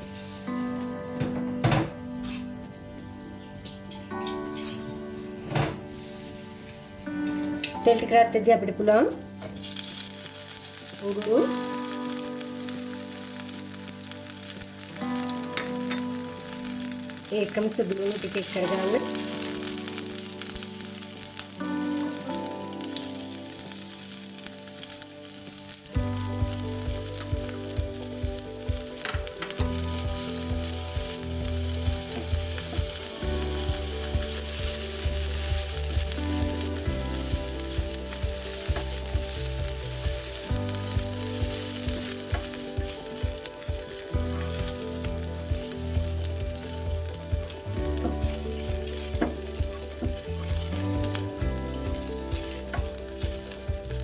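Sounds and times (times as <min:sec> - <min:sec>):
garlic sizzling in hot oil: 0:00.0 - 0:01.3, 0:04.1 - 0:54.0
wooden spatula stirring: 0:38.6 - 0:54.0.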